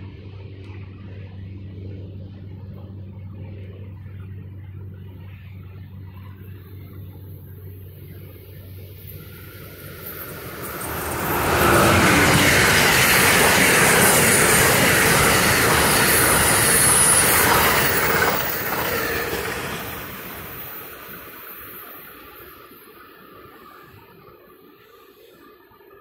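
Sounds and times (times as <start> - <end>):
train wheels rushing on rails: 8.2 - 25.8.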